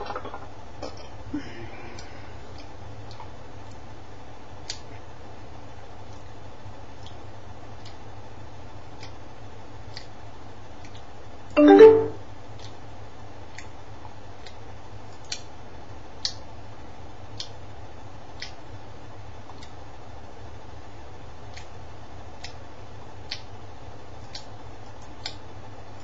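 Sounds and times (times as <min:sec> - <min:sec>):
short loud pitched sound: 0:11.6 - 0:12.2.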